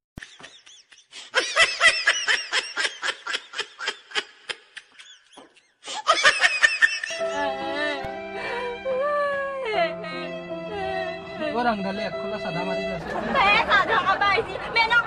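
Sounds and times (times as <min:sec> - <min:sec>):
person laughing: 0:00.2 - 0:07.9
music with held notes: 0:07.0 - 0:14.2.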